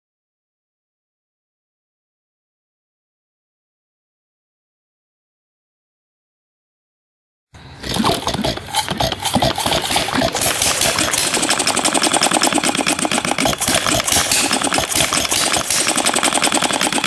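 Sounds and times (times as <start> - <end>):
gas engine running: 7.6 - 17.0.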